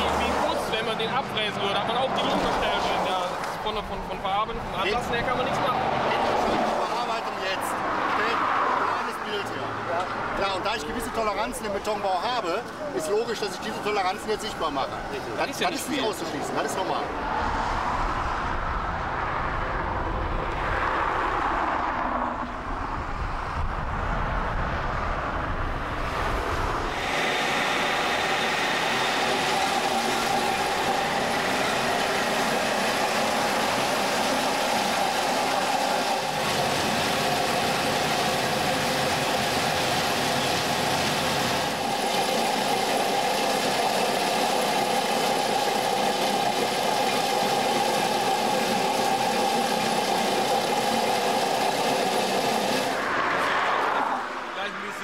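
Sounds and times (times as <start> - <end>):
milling machine grinding concrete: 26.9 - 53.0.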